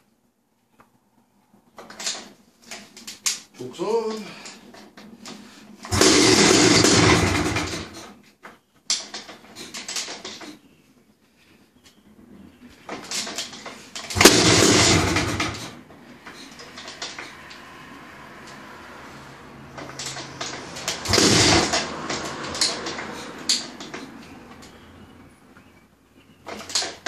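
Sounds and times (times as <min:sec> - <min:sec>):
motorcycle engine kick-started: 0:05.8 - 0:08.2, 0:13.0 - 0:17.3, 0:19.7 - 0:24.8.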